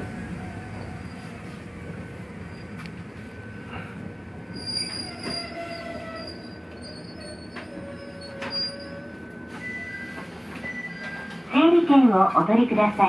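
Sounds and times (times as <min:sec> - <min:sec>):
train rumble: 0:00.0 - 0:13.0
train wheels squealing: 0:00.6 - 0:01.4, 0:02.4 - 0:02.8, 0:04.5 - 0:11.5.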